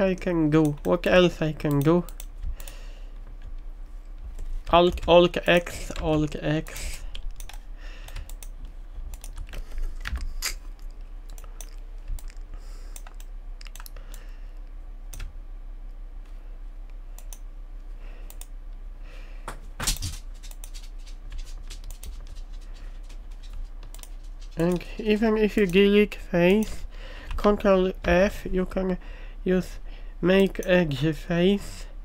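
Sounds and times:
faint low hum: 0.0 - 32.0
keyboard and mouse clicks: 1.6 - 3.6, 4.2 - 14.3, 23.4 - 25.8.

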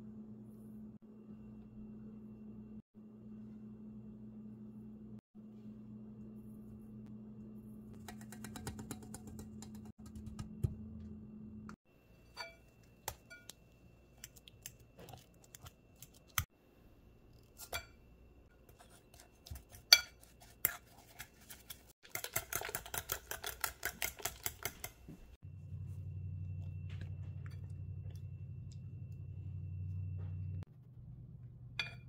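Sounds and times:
low hum: 0.0 - 8.2, 8.9 - 18.5, 25.4 - 32.0
fork tapping fast: 8.0 - 10.5.

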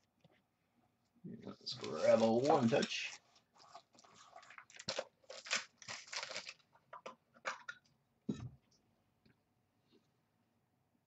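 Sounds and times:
plastic rustling and crinkling: 1.5 - 7.6.

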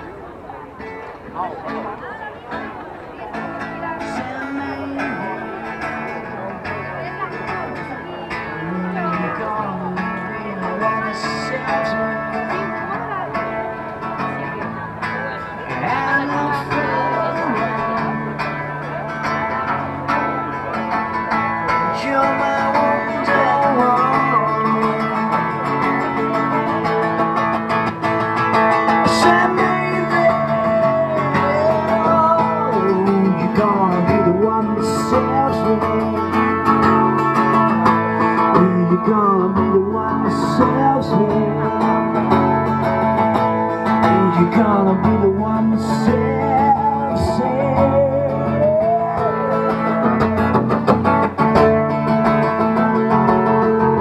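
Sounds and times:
plucked guitar: 0.0 - 54.0
person singing: 28.9 - 36.6, 43.9 - 50.8.

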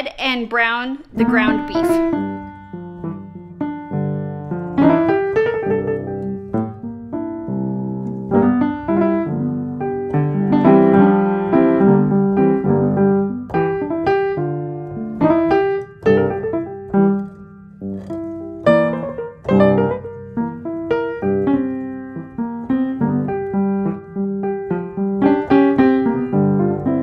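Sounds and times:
piano music: 1.1 - 27.0.

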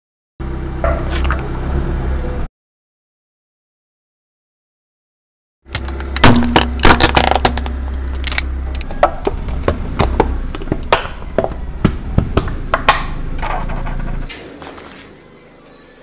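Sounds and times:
low engine hum: 0.4 - 2.5, 5.7 - 14.3
car tyre crushing objects: 5.7 - 15.2.

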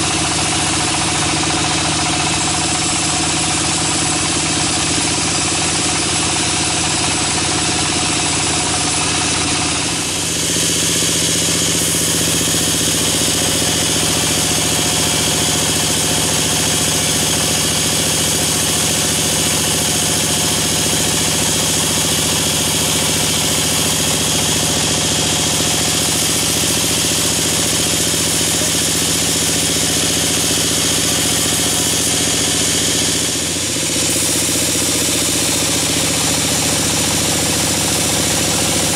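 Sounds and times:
sawmill motor drone: 0.0 - 38.9
saw blade cutting log: 9.9 - 38.9.

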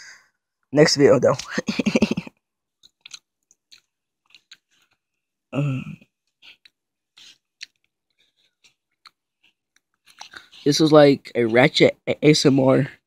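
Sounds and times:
wet mouth clicks and smacks: 2.8 - 5.0, 7.6 - 7.9
person chewing food: 2.8 - 5.4, 6.0 - 10.5.

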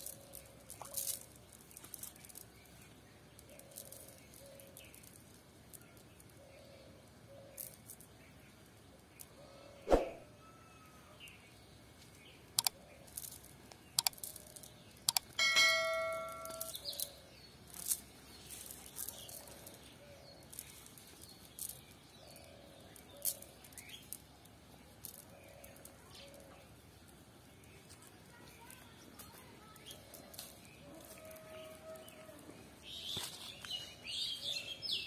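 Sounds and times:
quiet outdoor ambience: 0.0 - 35.0
sharp clicks: 12.6 - 12.8, 13.7 - 15.4
metallic bell-like ding: 15.4 - 16.7.

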